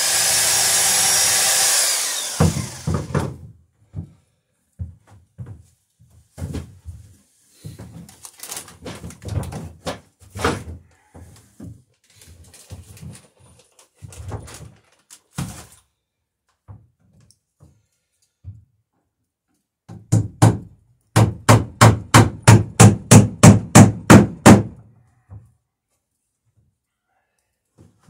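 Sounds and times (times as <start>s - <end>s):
hammer driving nail into wood: 0.0s - 3.4s, 20.0s - 24.8s.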